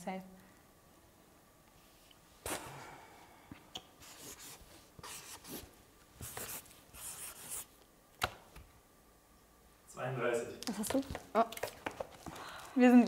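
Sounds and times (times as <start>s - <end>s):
marker scratching on whiteboard: 4.0s - 7.7s.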